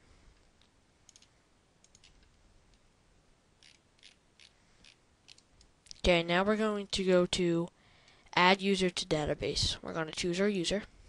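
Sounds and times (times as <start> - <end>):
computer mouse clicks: 0.6 - 2.3, 3.6 - 6.0.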